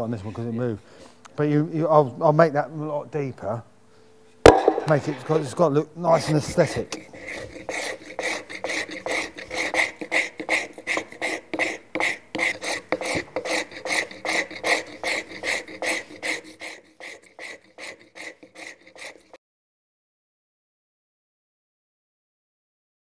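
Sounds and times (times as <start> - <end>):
blade scraping wood: 4.5 - 19.4.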